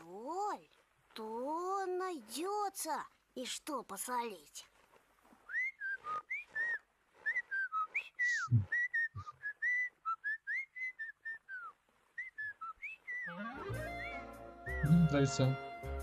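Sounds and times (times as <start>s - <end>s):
person whistling a tune: 5.5s - 15.2s.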